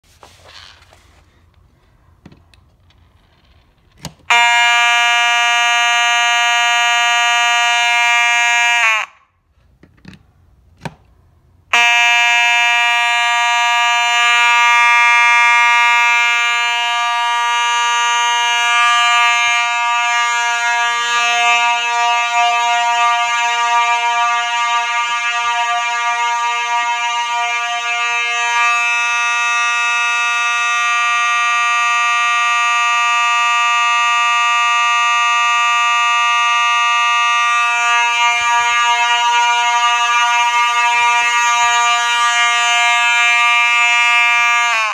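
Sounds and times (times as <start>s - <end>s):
fire alarm horn buzzing: 4.2s - 9.5s, 11.6s - 44.9s.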